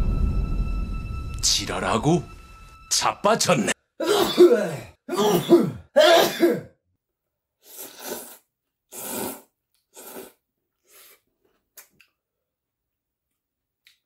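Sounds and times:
noodle slurping: 7.6s - 11.3s.

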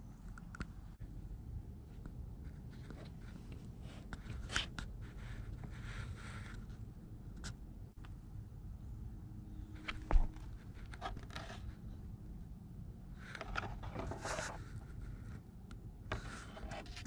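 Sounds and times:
plastic handling scrapes and rustles: 9.8s - 11.8s, 13.2s - 15.4s.

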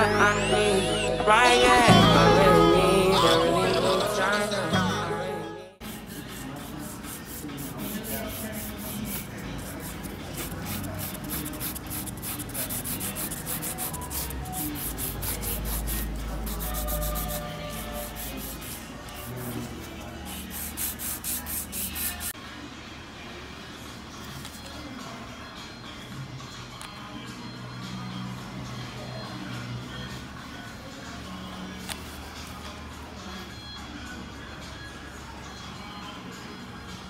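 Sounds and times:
nail file rasping on fingernails: 5.9s - 18.8s.

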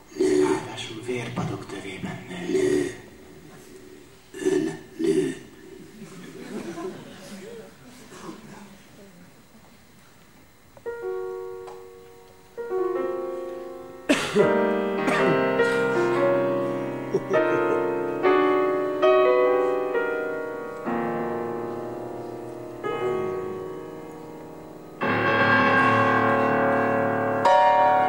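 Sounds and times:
piano chords: 10.8s - 28.0s.

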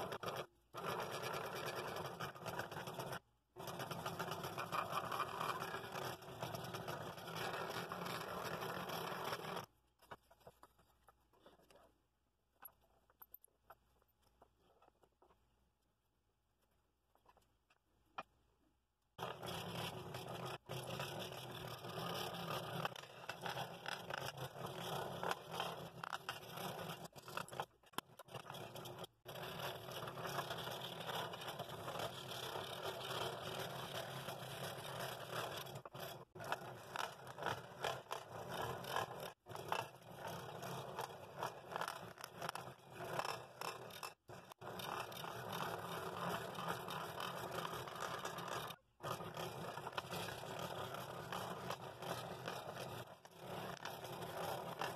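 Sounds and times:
scroll saw cutting wood: 19.2s - 54.9s.

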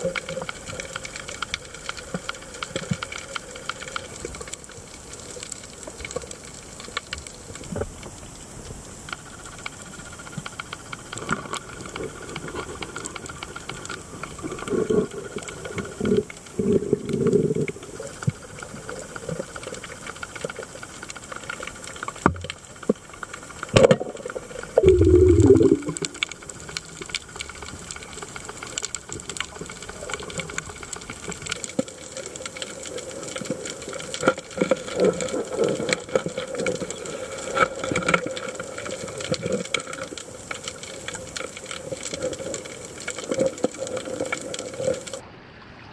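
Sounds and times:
underwater hiss with crackling clicks: 0.0s - 45.2s
low underwater bursts: 24.8s - 26.5s.

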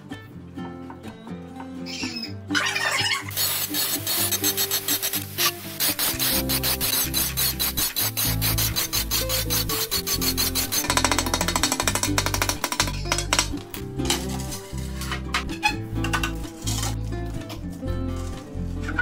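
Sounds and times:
background music with bass line: 0.0s - 19.0s
angle grinder scraping tile: 2.6s - 17.0s.

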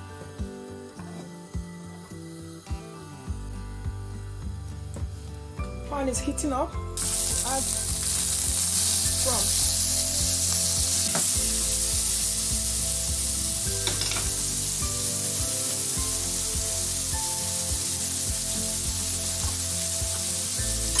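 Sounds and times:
prawns sizzling in frying pan: 5.9s - 21.0s.

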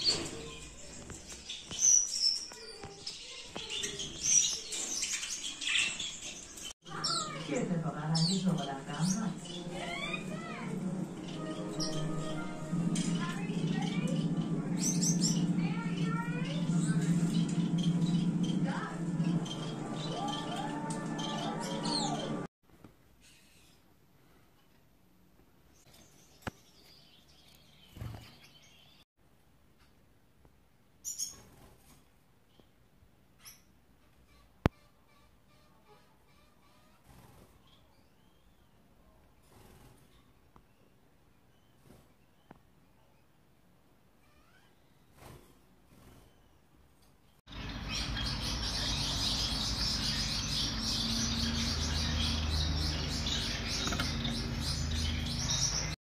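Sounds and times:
finch chirping: 0.0s - 22.5s, 47.5s - 56.0s.

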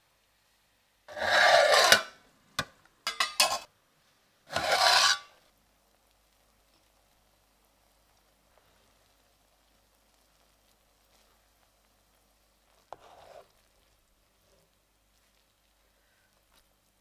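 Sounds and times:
pot lid rasping scrapes: 1.1s - 2.2s, 3.1s - 3.7s, 4.5s - 5.4s.

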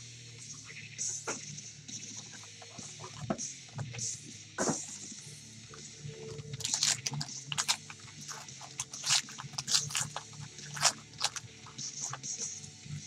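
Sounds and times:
foil wrapper crinkling and tearing: 6.2s - 12.4s.

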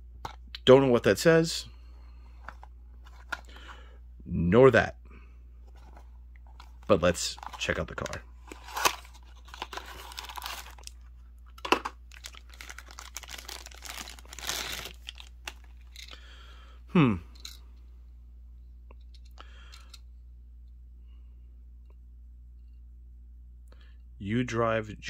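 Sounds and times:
plastic wrapping crinkling and tearing: 7.3s - 11.0s, 12.1s - 15.9s.

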